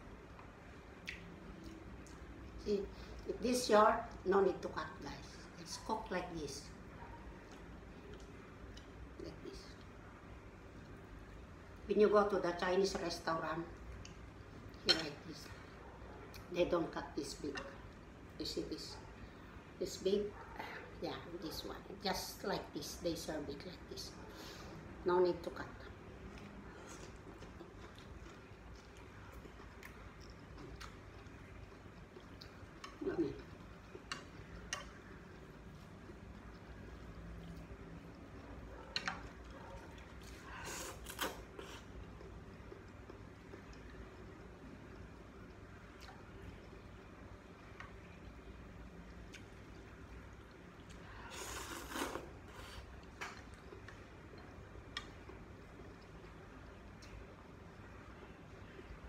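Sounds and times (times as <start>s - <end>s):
chewing: 26.2s - 57.3s
noodle slurping: 51.2s - 52.9s.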